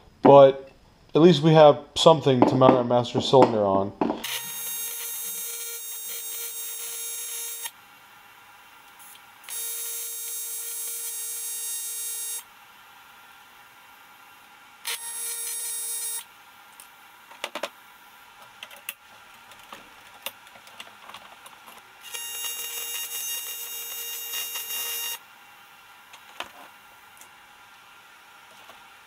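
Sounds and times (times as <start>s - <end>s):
welding arc buzzing: 4.0s - 7.8s, 8.8s - 12.6s, 14.8s - 17.3s, 22.0s - 25.3s.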